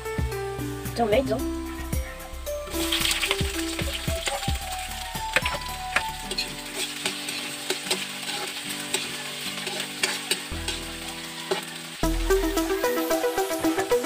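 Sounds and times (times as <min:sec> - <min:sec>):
tomatoes sizzling in a wok: 0:00.0 - 0:14.0
metal spatula scraping wok: 0:02.7 - 0:12.8.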